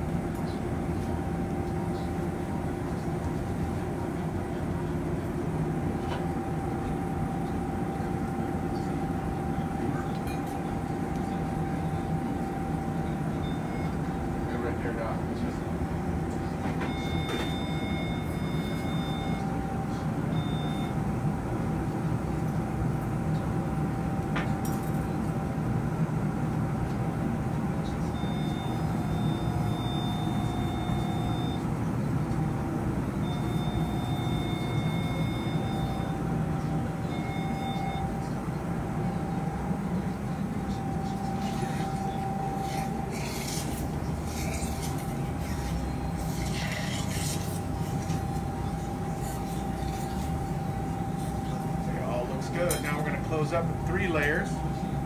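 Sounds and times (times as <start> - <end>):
equipment hum: 0.0 - 55.0
electronic activation tone: 33.2 - 36.2.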